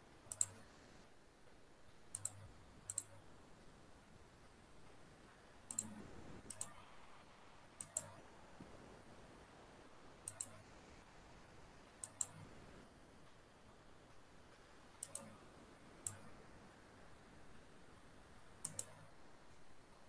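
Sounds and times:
sharp double clicks: 0.3s - 0.6s, 2.1s - 3.2s, 5.7s - 6.8s, 7.8s - 8.2s, 10.2s - 10.6s, 12.0s - 12.4s, 15.0s - 15.4s, 18.6s - 19.1s.

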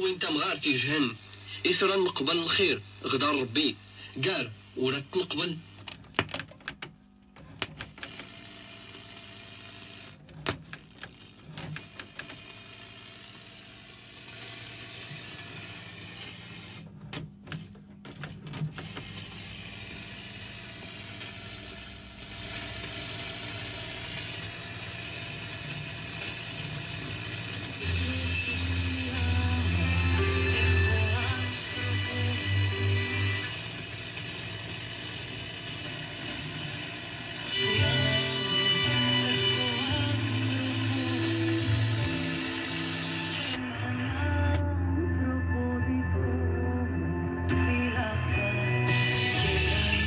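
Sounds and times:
radio static and hiss: 0.0s - 6.4s.

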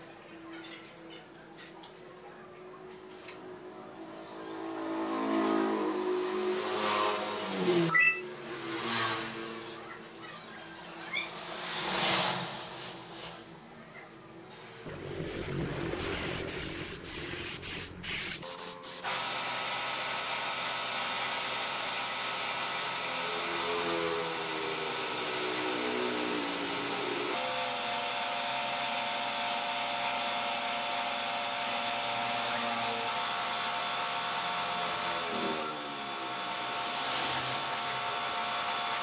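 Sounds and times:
spray gun hissing: 15.1s - 39.0s.

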